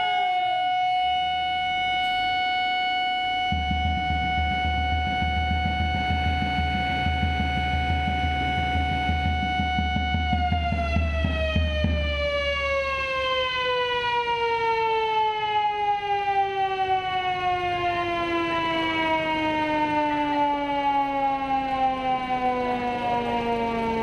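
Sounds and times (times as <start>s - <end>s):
siren winding down: 0.0s - 24.0s
background music with low beat: 3.2s - 13.5s.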